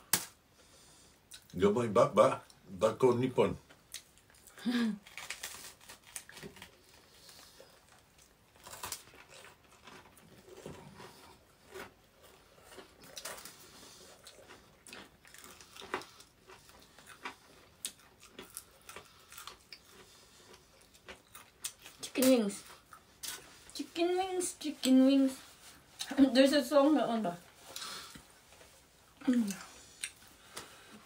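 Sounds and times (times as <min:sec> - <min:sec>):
chewing and biting food: 0:03.9 - 0:22.0.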